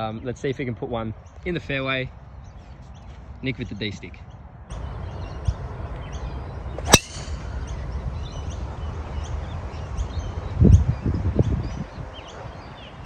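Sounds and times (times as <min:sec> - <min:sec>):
birds chirping: 0:00.0 - 0:13.0
golf ball struck by driver: 0:06.9 - 0:07.6.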